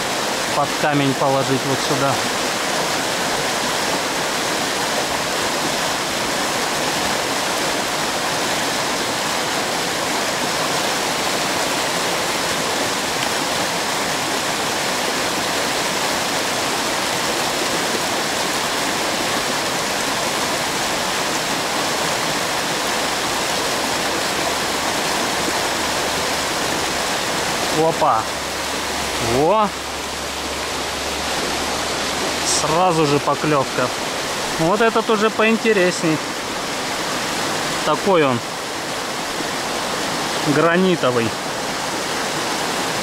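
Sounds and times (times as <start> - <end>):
river rushing over stones: 0.0 - 43.0.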